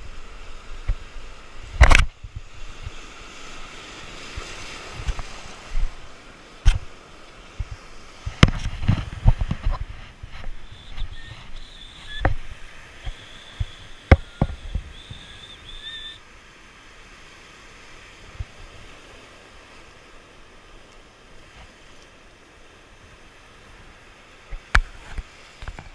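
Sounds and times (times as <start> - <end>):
faint surf: 0.0 - 25.9
faint high whine: 10.3 - 16.2.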